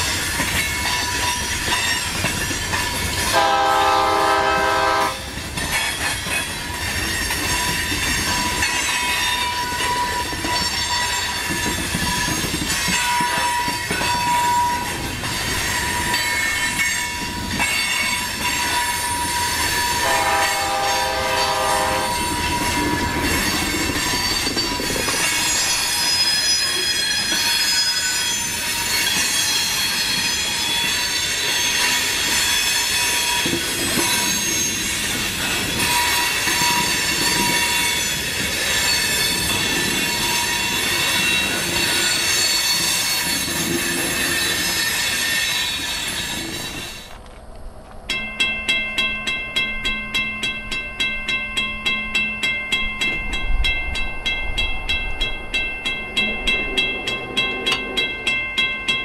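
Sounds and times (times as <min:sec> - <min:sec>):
train wheels squealing on rail: 0:00.0 - 0:47.2
wheels clacking over rail joints: 0:00.0 - 0:54.0
train horn: 0:03.3 - 0:05.3, 0:19.9 - 0:22.4.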